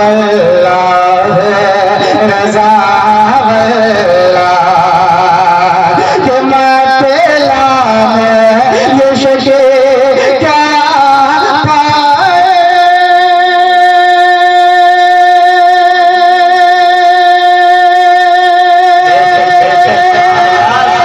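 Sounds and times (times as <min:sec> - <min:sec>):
person singing through loudspeakers: 0:00.0 - 0:21.0.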